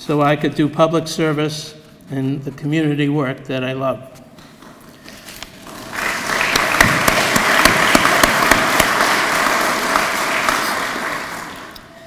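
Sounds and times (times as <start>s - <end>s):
audience applauding: 5.6s - 11.9s.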